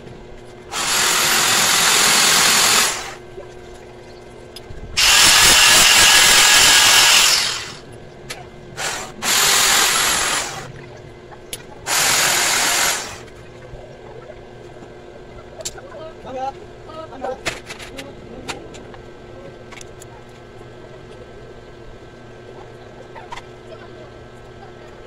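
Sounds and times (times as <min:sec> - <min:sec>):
electric drill bursts: 0:00.7 - 0:03.2, 0:05.0 - 0:07.8, 0:08.8 - 0:10.7, 0:11.9 - 0:13.2.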